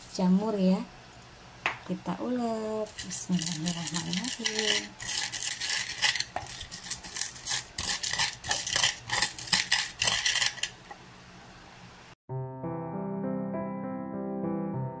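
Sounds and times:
pestle scraping and knocking mortar: 2.9 - 10.8.

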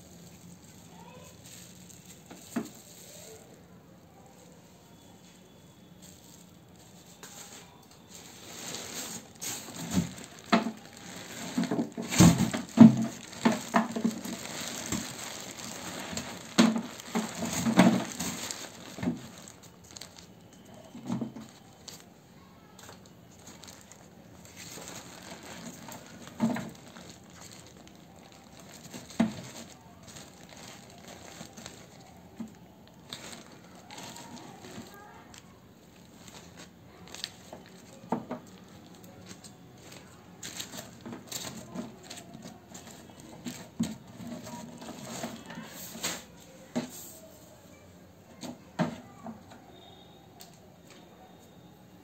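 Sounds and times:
plastic bag crinkling: 0.0 - 4.5, 6.0 - 46.7
vegetable peels rustling: 6.0 - 20.6.

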